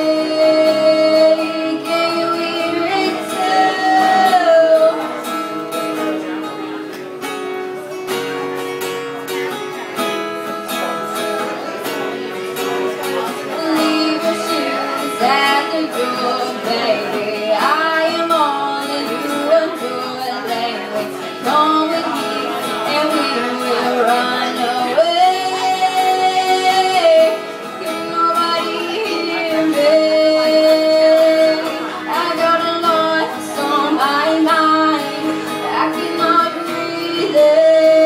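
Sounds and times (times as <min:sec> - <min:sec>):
woman singing: 0:00.0 - 0:05.2, 0:13.4 - 0:38.0
acoustic guitar strumming: 0:00.0 - 0:38.0.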